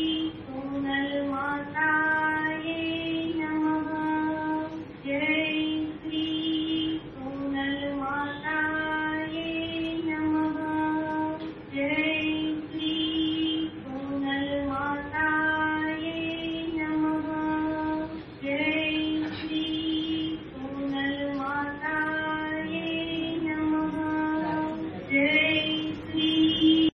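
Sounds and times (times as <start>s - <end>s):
woman singing a hymn: 0.0s - 26.9s.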